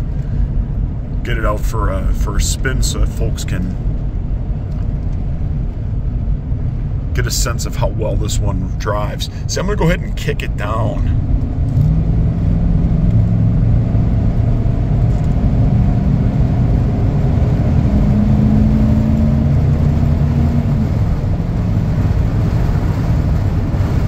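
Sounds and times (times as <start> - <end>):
truck engine accelerating hard: 0.0 - 24.0.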